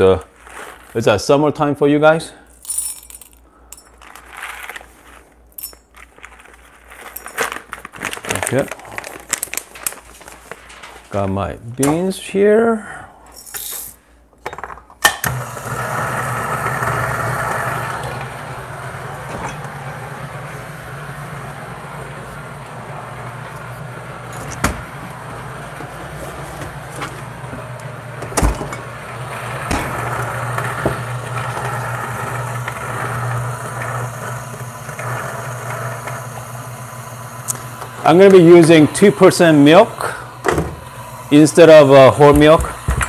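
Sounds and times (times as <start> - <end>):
coffee grinder grinding: 15.3 - 43.0.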